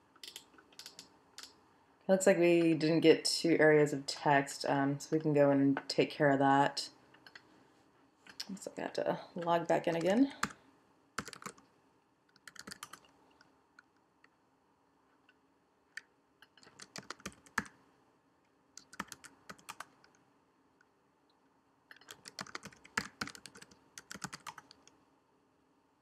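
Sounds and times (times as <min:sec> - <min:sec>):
typing on computer keyboard: 0:00.2 - 0:01.6, 0:11.2 - 0:11.6, 0:12.3 - 0:13.1, 0:16.4 - 0:17.8, 0:18.8 - 0:20.2, 0:21.9 - 0:25.0.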